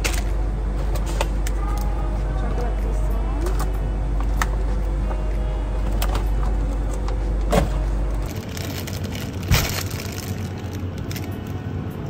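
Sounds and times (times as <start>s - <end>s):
refrigerator hum: 0.0s - 12.0s
plastic bag crinkling: 8.1s - 11.6s
plastic packaging clicks and crinkles: 8.1s - 11.7s.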